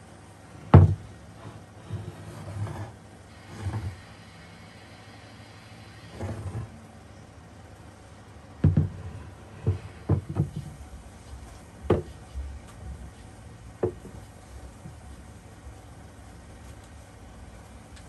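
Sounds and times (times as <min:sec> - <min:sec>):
wooden table knocking on workbench: 0:00.7 - 0:01.0, 0:08.6 - 0:10.7, 0:11.9 - 0:12.1, 0:13.8 - 0:14.2.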